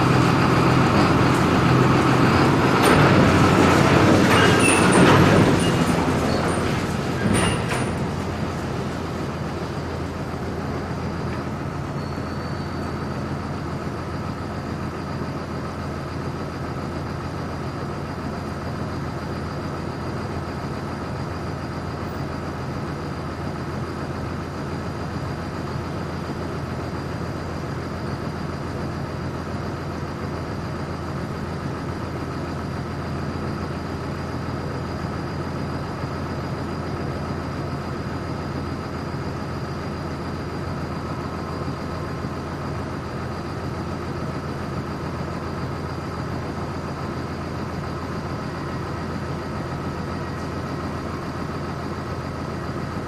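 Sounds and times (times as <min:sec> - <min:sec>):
vehicle engine running: 0:00.0 - 0:14.9.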